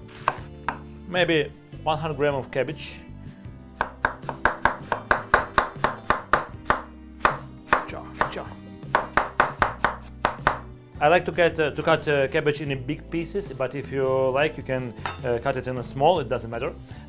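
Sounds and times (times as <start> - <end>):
knife slicing cabbage on board: 0.0 - 0.8, 3.8 - 10.6.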